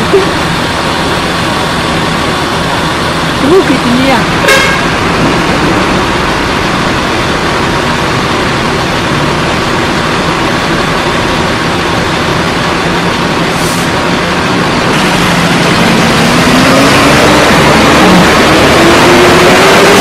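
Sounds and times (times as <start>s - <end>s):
bus diesel engine idling: 0.0s - 19.8s.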